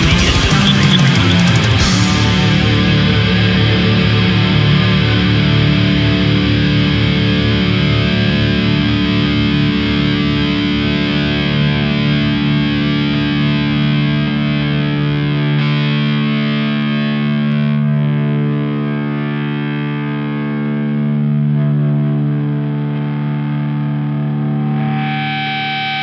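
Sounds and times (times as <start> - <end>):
fast pulsing low end: 0.0 - 6.2
distorted electric guitar chord: 0.0 - 26.0.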